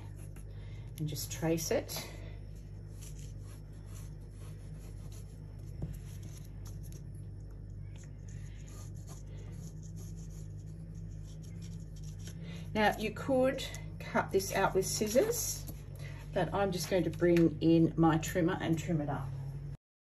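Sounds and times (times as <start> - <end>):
steady low hum: 0.0 - 19.8
pencil scraping on paper: 2.8 - 7.0, 8.0 - 12.4.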